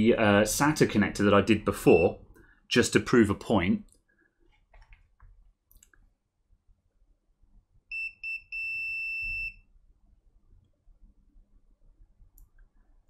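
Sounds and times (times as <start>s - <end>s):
multimeter beeps: 7.9s - 9.7s.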